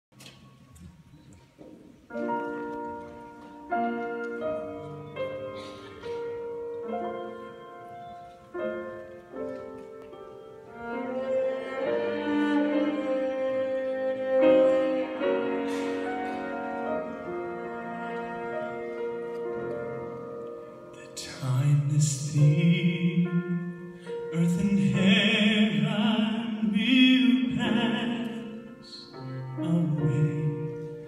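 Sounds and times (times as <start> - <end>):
piano chords: 0.1 - 31.0
sustained cello notes: 10.7 - 21.0.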